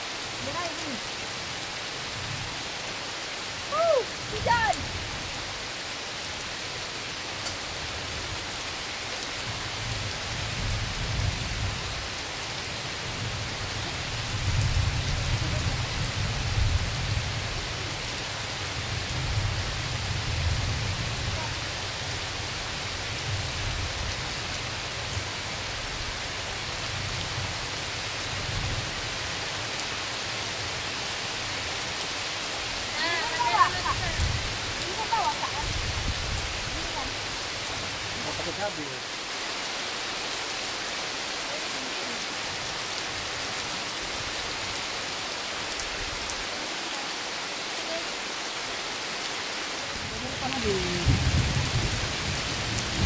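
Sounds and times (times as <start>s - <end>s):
heavy rain pouring: 0.0s - 53.0s
thunder rumbling: 50.0s - 53.0s.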